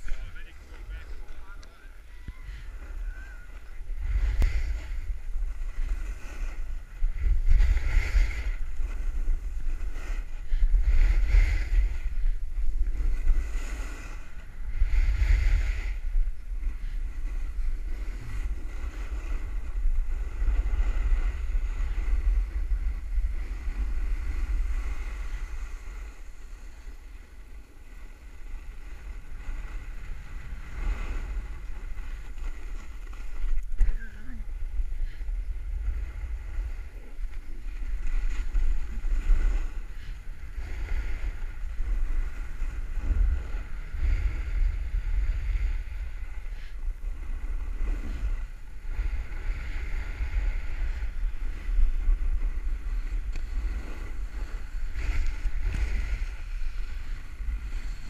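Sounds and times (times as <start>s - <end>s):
snowboard scraping snow: 0.0s - 58.0s
wind buffeting microphone: 0.0s - 58.0s.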